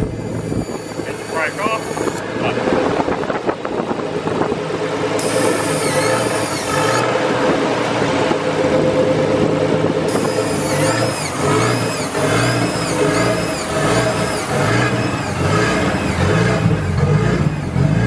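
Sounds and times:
car engine revving: 0:04.9 - 0:18.0.

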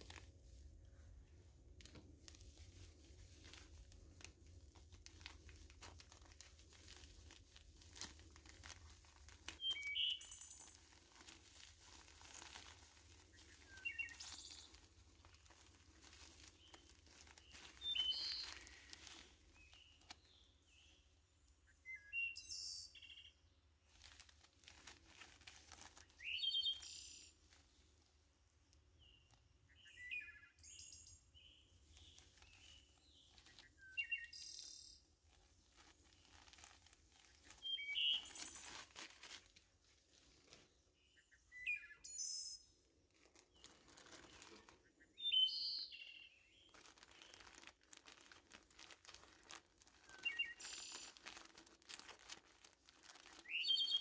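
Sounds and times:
plastic packets crinkling: 0:00.0 - 0:21.0, 0:23.8 - 0:28.1, 0:31.7 - 0:40.7, 0:43.1 - 0:54.0
short bird chirps: 0:09.6 - 0:10.9, 0:17.4 - 0:21.0, 0:21.7 - 0:23.4, 0:26.2 - 0:27.3, 0:29.0 - 0:35.1, 0:37.2 - 0:38.9, 0:41.0 - 0:42.8, 0:43.6 - 0:47.4, 0:50.0 - 0:51.5, 0:53.4 - 0:54.0.

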